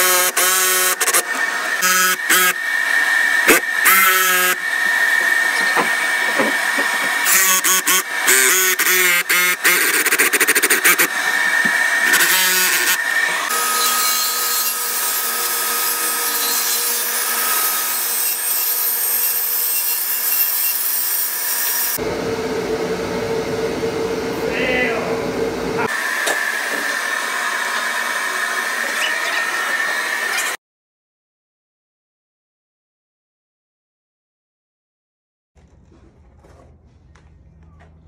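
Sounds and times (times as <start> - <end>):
jigsaw cutting wood: 0.0 - 22.0, 25.8 - 30.6
track saw cutting wood: 0.0 - 30.6
steady machine hum: 22.0 - 25.9.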